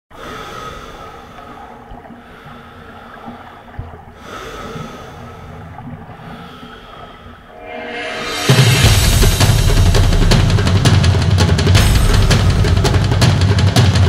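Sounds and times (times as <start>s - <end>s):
person breathing heavily: 0.2s - 1.6s, 4.2s - 5.6s
low rumble: 7.5s - 13.3s.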